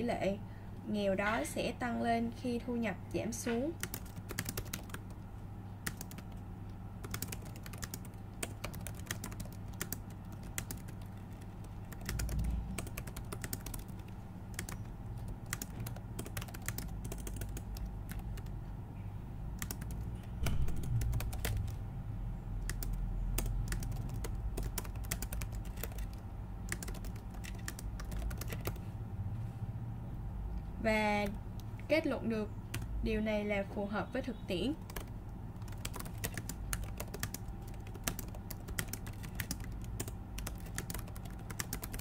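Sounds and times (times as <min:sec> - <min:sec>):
typing on a computer keyboard: 0:03.5 - 0:05.2, 0:05.8 - 0:06.4, 0:07.0 - 0:18.6, 0:19.6 - 0:21.8, 0:22.6 - 0:28.8, 0:32.7 - 0:32.9, 0:34.8 - 0:42.0
low hum: 0:04.7 - 0:33.2.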